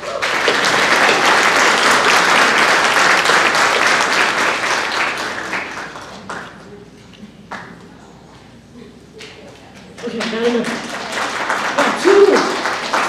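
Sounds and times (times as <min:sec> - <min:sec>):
audience applauding: 0:00.0 - 0:06.8, 0:10.0 - 0:13.0.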